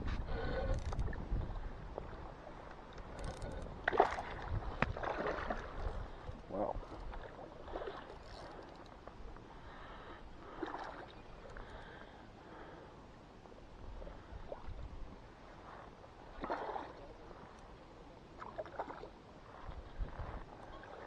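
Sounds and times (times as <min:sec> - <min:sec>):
wind rumble on microphone: 0:00.0 - 0:08.5, 0:13.7 - 0:17.5, 0:19.4 - 0:21.0
water lapping against shore: 0:00.0 - 0:21.0.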